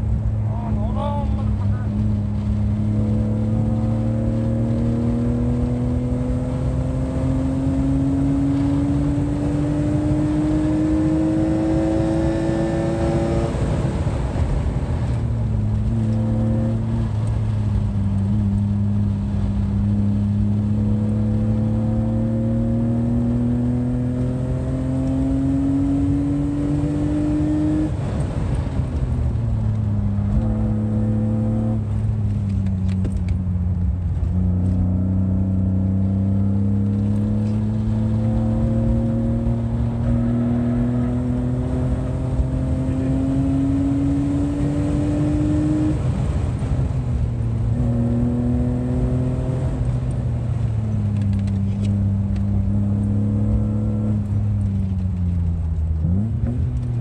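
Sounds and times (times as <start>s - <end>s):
car engine accelerating: 0.0s - 57.0s
road and tyre noise: 0.0s - 57.0s.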